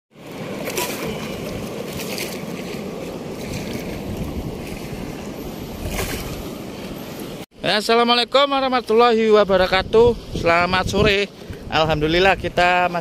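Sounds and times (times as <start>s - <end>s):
wind buffeting microphone: 0.9s - 7.2s, 9.4s - 13.0s.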